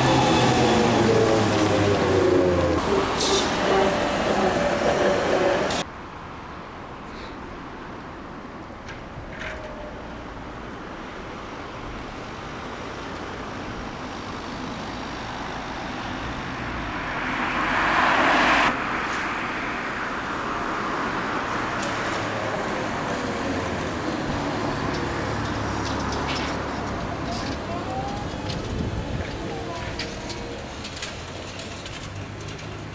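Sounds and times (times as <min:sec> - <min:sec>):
trolleybus moving: 0:00.0 - 0:05.9, 0:08.7 - 0:32.9
steady traffic noise: 0:00.0 - 0:32.9
car passing close by: 0:15.2 - 0:26.2.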